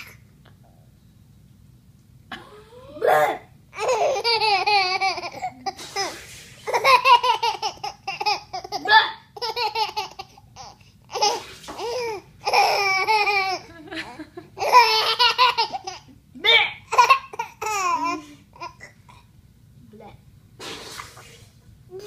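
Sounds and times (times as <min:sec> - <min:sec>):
baby laughing: 0:03.8 - 0:16.1, 0:16.9 - 0:19.0.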